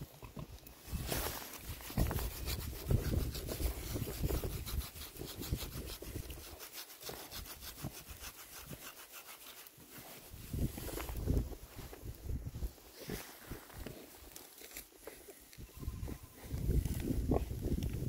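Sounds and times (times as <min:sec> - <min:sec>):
hand scratching bristly coat: 0:00.9 - 0:12.0.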